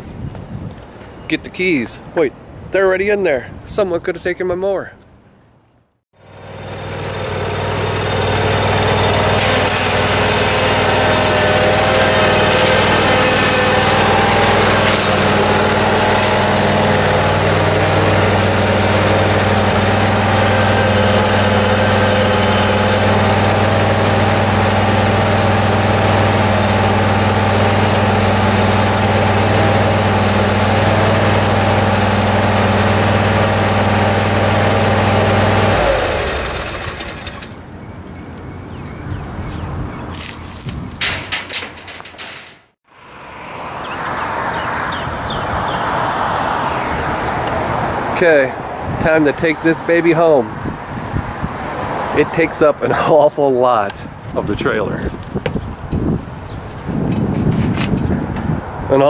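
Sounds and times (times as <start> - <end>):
mower engine running: 6.2 - 37.6.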